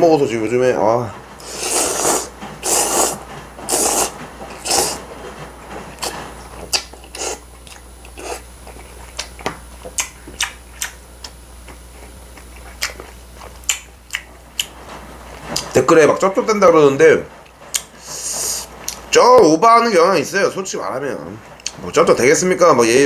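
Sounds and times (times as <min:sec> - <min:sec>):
person slurping noodles: 0:01.4 - 0:05.1, 0:06.0 - 0:08.5
open-mouth chewing: 0:01.4 - 0:14.8, 0:17.4 - 0:19.0.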